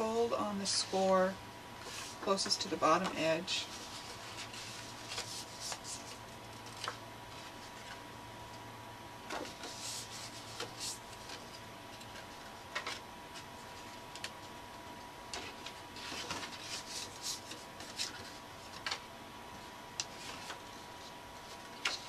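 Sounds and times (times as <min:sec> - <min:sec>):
faint high hum: 0:00.0 - 0:22.0
paper rustles and scrapes: 0:01.8 - 0:02.5, 0:03.6 - 0:08.0, 0:09.3 - 0:14.0, 0:15.4 - 0:19.0, 0:20.1 - 0:22.0.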